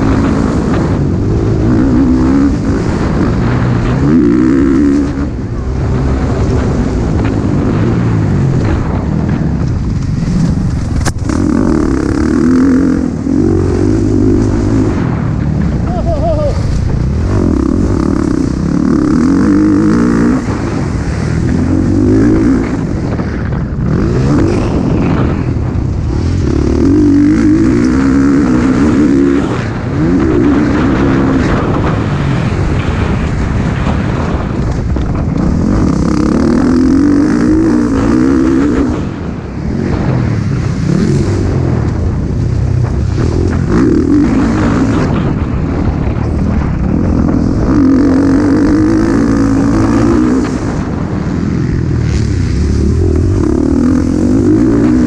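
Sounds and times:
motocross bike engine revving: 0.0 - 55.0.

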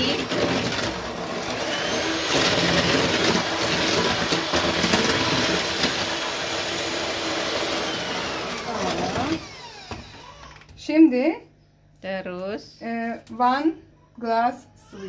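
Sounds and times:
electric hand mixer running: 0.0 - 10.7.

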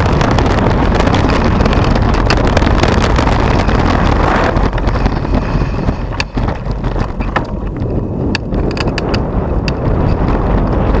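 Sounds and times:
bike clicks and rattles: 0.0 - 11.0
wind buffeting microphone: 0.0 - 11.0.

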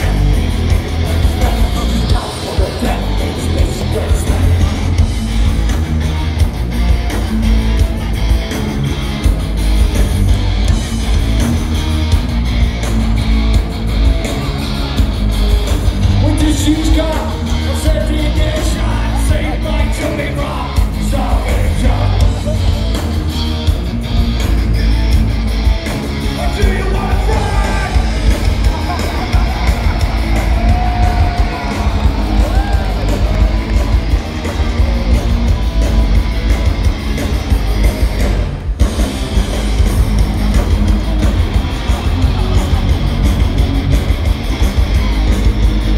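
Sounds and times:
live metal band: 0.0 - 45.9
shouted vocals: 26.4 - 35.2.

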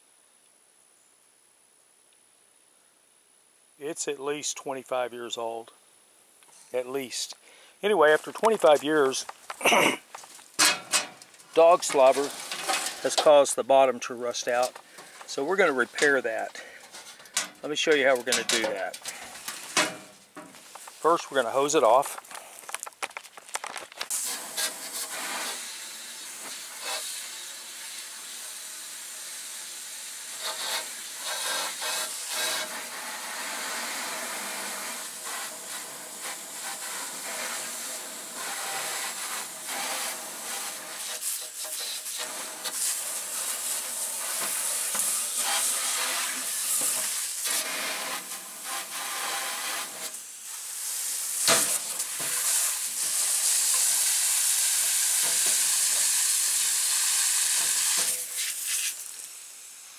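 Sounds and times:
hose spray hitting sheet metal: 10.6 - 22.2, 24.1 - 28.6, 30.2 - 59.4.

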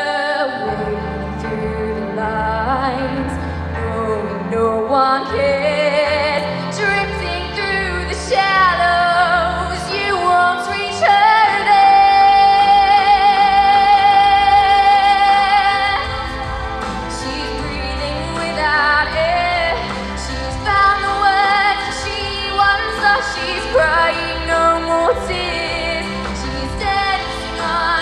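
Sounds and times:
backing music: 0.0 - 28.0
girl singing into microphone: 0.0 - 28.0.

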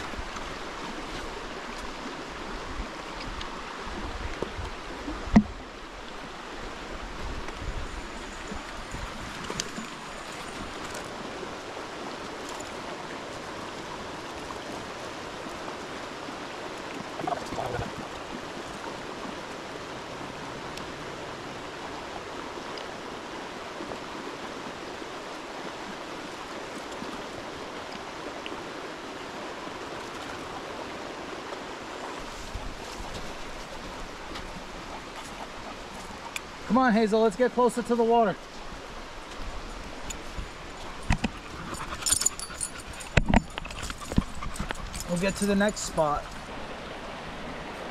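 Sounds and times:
creek flowing: 0.0 - 47.9.

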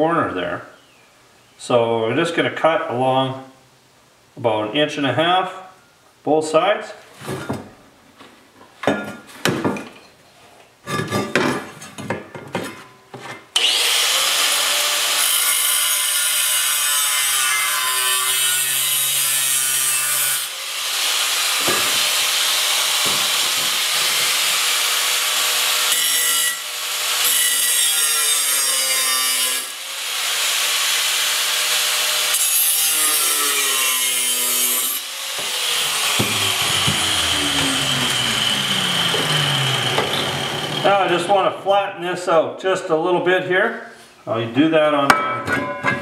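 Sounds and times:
angle grinder cutting steel: 13.6 - 41.0
knocks: 21.6 - 22.1, 23.0 - 24.3, 36.1 - 37.8.

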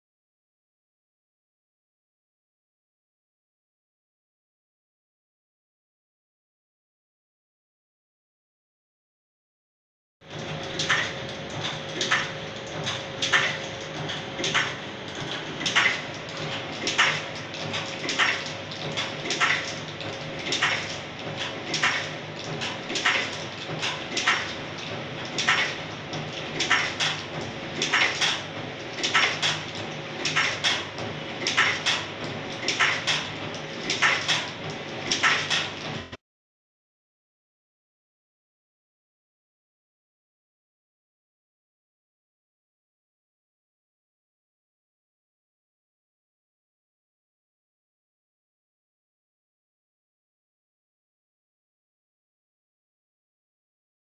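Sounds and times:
machine clacking: 10.3 - 36.2
motor hum: 10.3 - 36.2.

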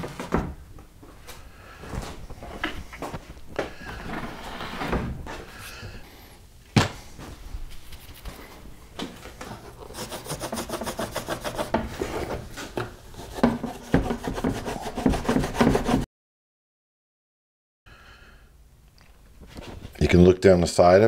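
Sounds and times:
plastic scraping on wood: 9.7 - 16.0.

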